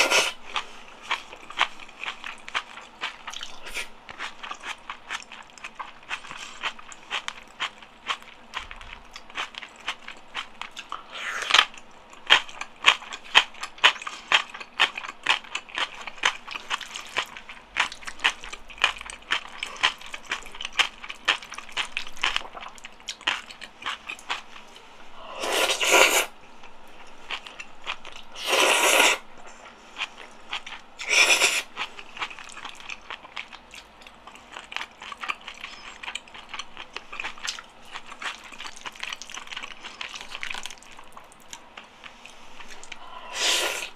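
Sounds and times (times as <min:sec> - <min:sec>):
wet chewing and mouth clicks: 0:00.0 - 0:29.2, 0:30.0 - 0:43.9.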